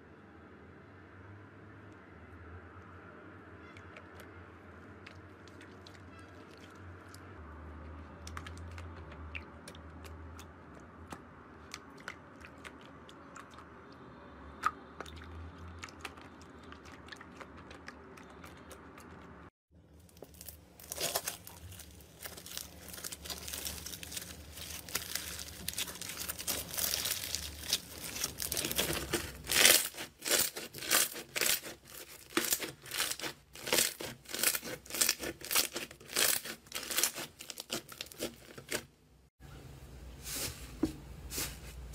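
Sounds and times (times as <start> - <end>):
crunchy slime crunching: 19.9 - 38.9
slime tearing crackly: 20.2 - 38.8.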